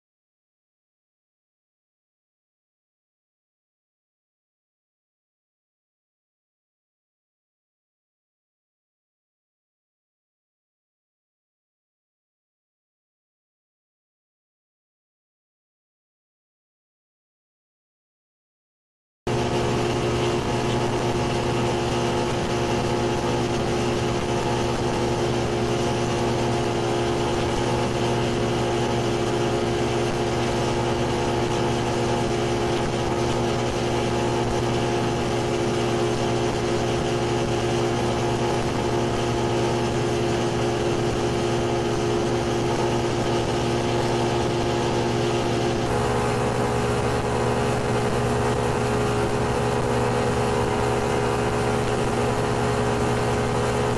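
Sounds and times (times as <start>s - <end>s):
outboard motor running: 19.3s - 53.9s.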